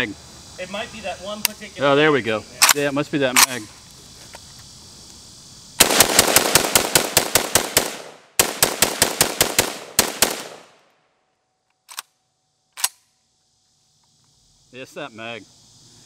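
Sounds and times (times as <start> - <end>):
rifle shots in rapid strings: 5.8 - 10.7
rifle click: 11.8 - 12.2, 12.8 - 13.0.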